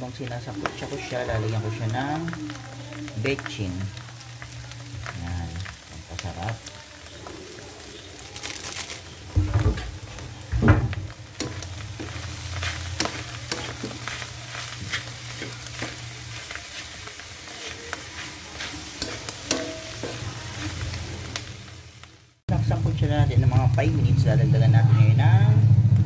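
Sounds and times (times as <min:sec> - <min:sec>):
light sizzle: 0:00.0 - 0:25.2
loud thumps: 0:09.3 - 0:11.6
spatula scraping metal wok: 0:11.3 - 0:21.7.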